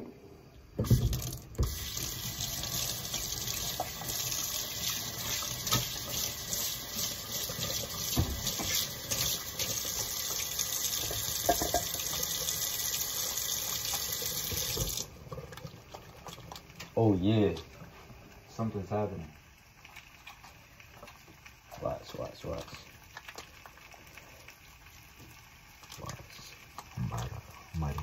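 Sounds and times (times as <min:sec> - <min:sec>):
faucet running into sink: 0:00.8 - 0:16.7.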